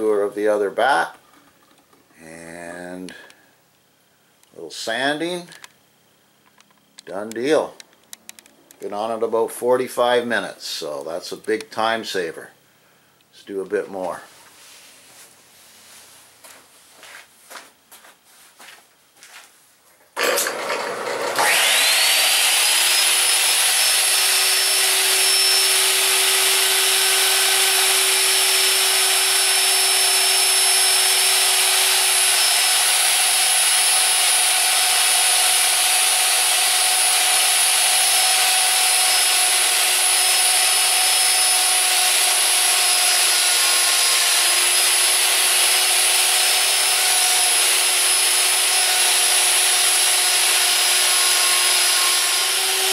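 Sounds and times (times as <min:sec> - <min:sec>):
wood router whining: 0:20.2 - 0:52.9.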